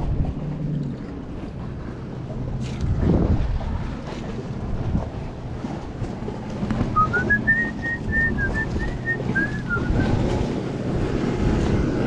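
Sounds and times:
wind: 0:00.0 - 0:12.0
whistled notes: 0:07.0 - 0:10.2.

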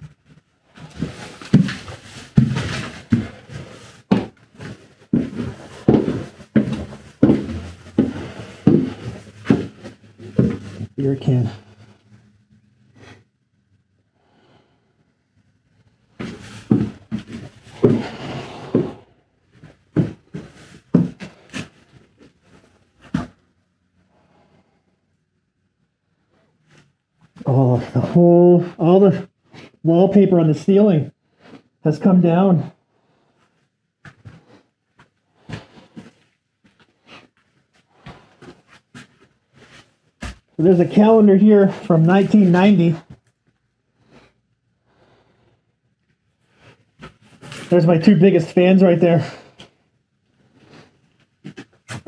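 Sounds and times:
footsteps on wooden stairs: 0:00.0 - 0:11.3, 0:16.2 - 0:19.0, 0:20.0 - 0:21.7, 0:35.4 - 0:37.2, 0:37.9 - 0:43.2
footsteps crunching on debris: 0:00.7 - 0:10.9.

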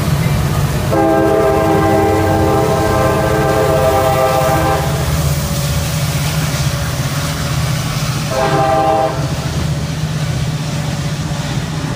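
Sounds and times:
freight train rumbling past: 0:00.0 - 0:11.9
train air horn blast: 0:00.9 - 0:05.2, 0:08.3 - 0:09.6.

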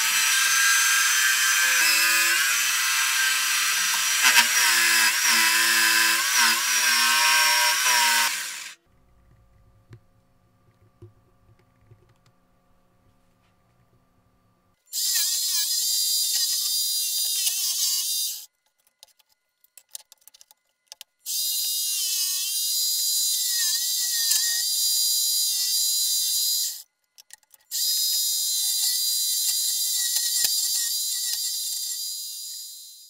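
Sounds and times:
jigsaw cutting plywood: 0:00.0 - 0:08.8.

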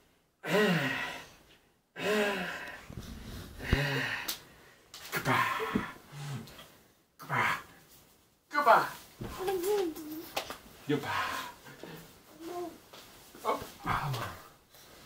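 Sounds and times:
breathy wordless vocal gasps: 0:03.5 - 0:04.4.

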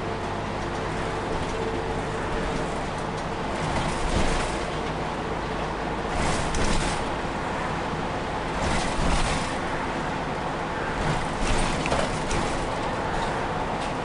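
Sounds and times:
bus engine and road noise: 0:00.0 - 0:14.0.

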